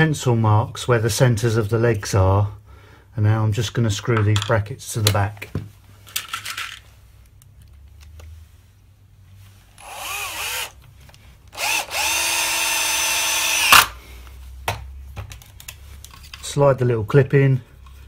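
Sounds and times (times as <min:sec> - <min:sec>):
cordless drill driving screws: 0:09.8 - 0:10.8, 0:11.5 - 0:14.0.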